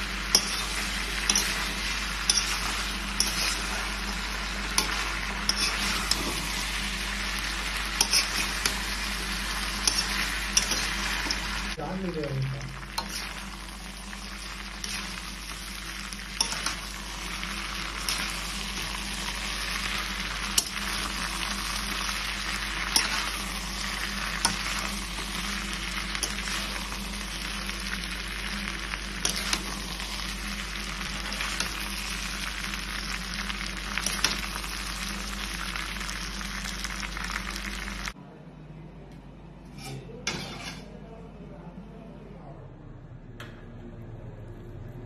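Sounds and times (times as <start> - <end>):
food sizzling in a wok: 0.0 - 38.2
metal spatula scraping pan: 4.7 - 6.7, 7.9 - 11.6, 39.7 - 40.9.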